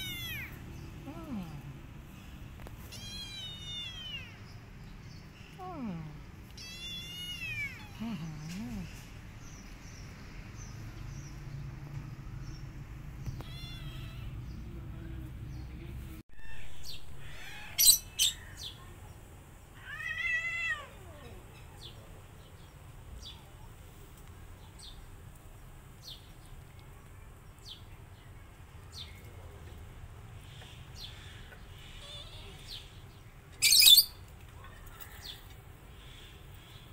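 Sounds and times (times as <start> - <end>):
cat meowing: 0.0 - 0.6, 2.9 - 4.4, 6.5 - 8.0, 13.4 - 14.4.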